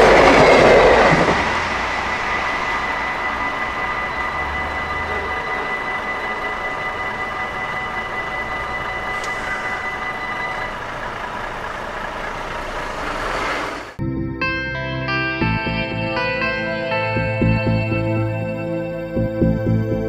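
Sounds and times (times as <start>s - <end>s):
level-crossing warning bell: 0.0s - 13.2s, 15.2s - 20.0s
steady outdoor noise: 0.0s - 14.0s.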